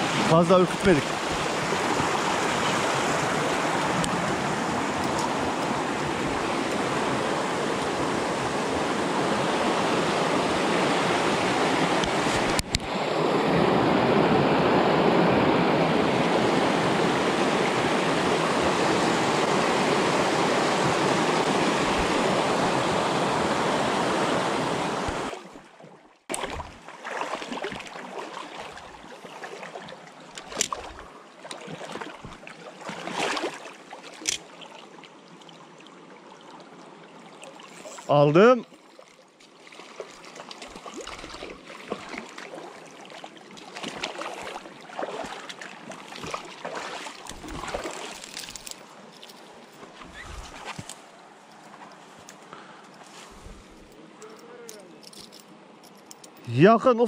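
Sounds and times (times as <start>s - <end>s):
creek rushing over rocks: 0.0s - 25.6s, 39.5s - 52.4s.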